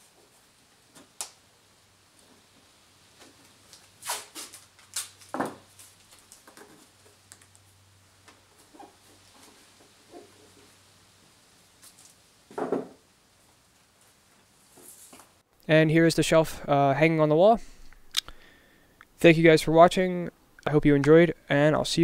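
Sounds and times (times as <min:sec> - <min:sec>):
tape ripping: 0:03.7 - 0:07.6.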